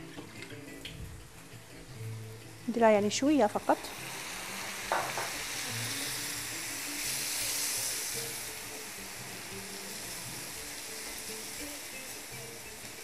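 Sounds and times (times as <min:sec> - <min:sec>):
meat sizzling in a pan: 0:00.0 - 0:13.0
quiet background music: 0:00.0 - 0:13.0.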